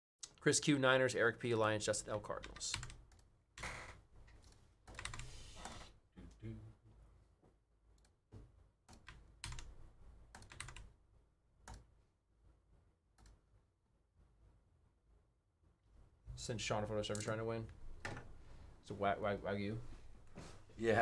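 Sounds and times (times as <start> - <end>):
keyboard typing and mouse clicks: 2.4 - 3.7, 4.3 - 6.0, 7.9 - 10.9, 11.6 - 11.9, 13.2 - 13.4.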